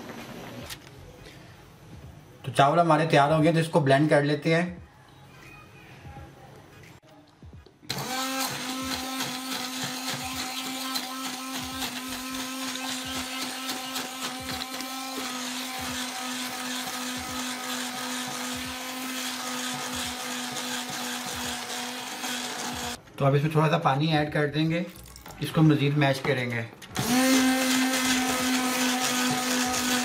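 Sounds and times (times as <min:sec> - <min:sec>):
immersion blender running: 0:07.9 - 0:23.0, 0:27.0 - 0:30.0.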